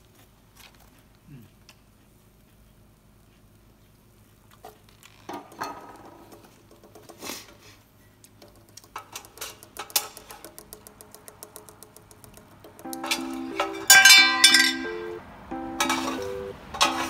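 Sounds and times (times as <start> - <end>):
chopsticks clicking on a frying pan: 8.4 - 13.2.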